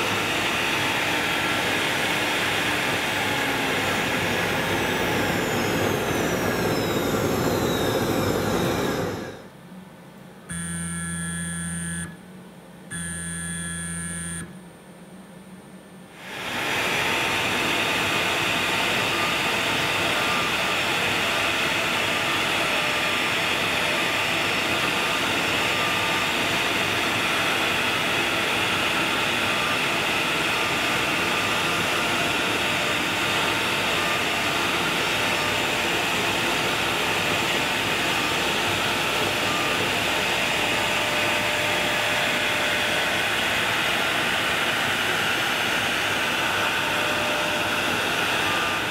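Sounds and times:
router spindle cutting whine: 0.0 - 9.4, 16.2 - 48.9
long electronic beeps: 10.5 - 12.2, 12.9 - 14.5.

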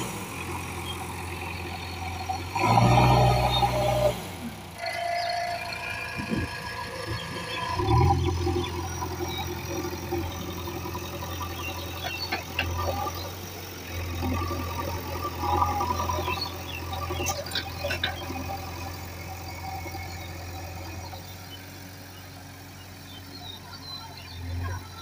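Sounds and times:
diesel engine revving: 0.0 - 25.0.

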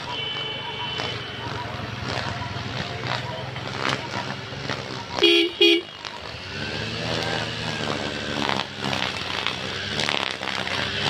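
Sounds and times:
vehicle horn toot: 0.0 - 1.8, 5.2 - 6.0
motorcycle engines idling: 0.0 - 11.0.

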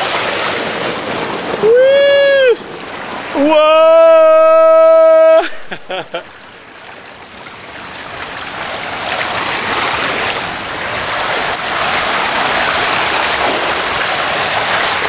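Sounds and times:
water rushing down a slide: 0.0 - 15.0
person yelping: 3.4 - 6.2.

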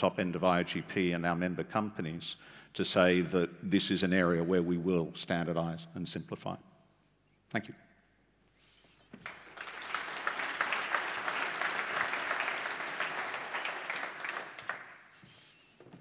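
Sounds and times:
audience applauding: 9.2 - 15.4.

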